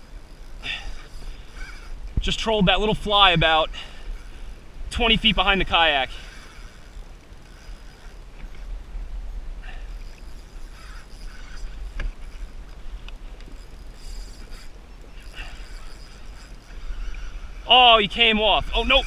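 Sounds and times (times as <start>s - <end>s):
wind rumble on microphone: 16.7s - 19.0s.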